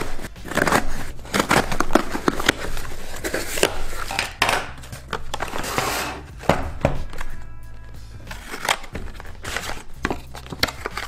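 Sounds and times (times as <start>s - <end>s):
cardboard flaps scraping and tearing: 0.0s - 4.1s
scissors cutting packing tape: 0.0s - 5.8s, 8.2s - 11.0s.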